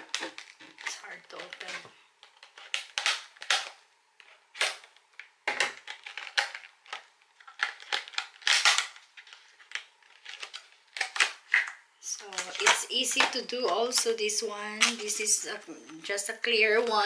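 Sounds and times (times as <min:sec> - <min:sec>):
plastic packaging crackling: 0:00.0 - 0:17.0.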